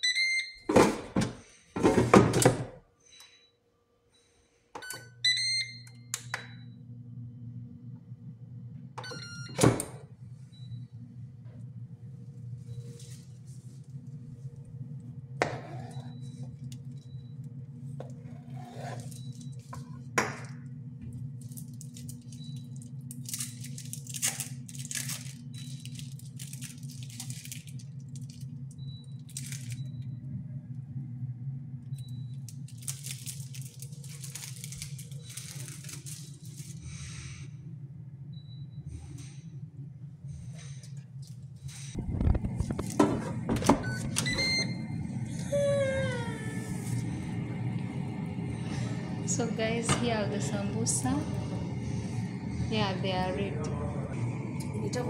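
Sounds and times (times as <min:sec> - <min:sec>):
air fryer humming: 0:00.0 - 0:55.0
plastic packaging crinkling: 0:21.4 - 0:29.9, 0:32.3 - 0:36.8.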